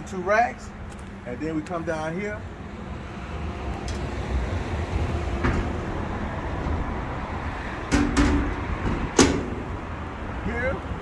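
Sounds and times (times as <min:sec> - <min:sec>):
metal door latches clanking: 0:07.9 - 0:09.7.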